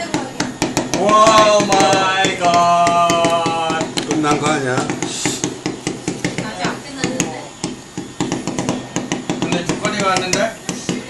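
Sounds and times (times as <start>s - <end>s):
fireworks crackling: 0.0s - 11.0s.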